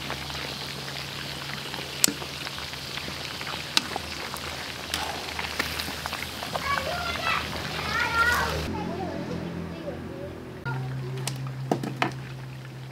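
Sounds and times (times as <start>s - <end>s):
meat sizzling in oil: 0.0s - 8.7s.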